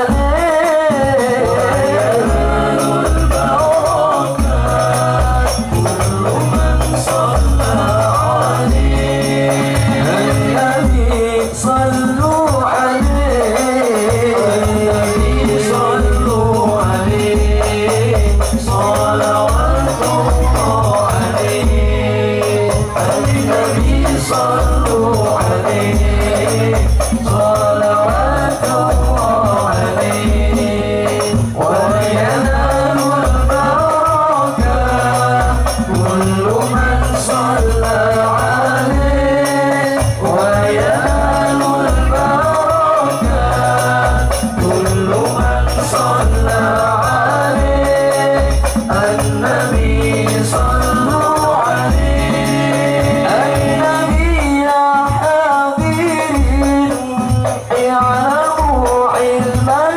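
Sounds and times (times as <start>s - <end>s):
frame drum beat: 0.0s - 59.9s
men singing in unison: 0.0s - 59.9s.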